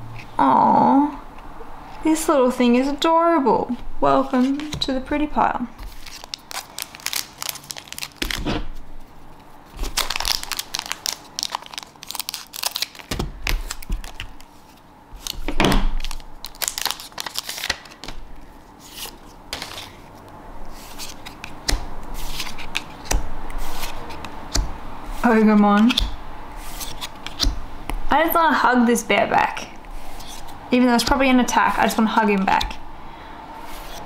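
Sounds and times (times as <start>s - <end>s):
cards being handled: 4.3s - 4.9s, 5.8s - 27.6s, 30.0s - 30.6s
foil pack crinkling and tearing: 5.8s - 8.5s, 9.7s - 14.5s, 15.2s - 18.2s.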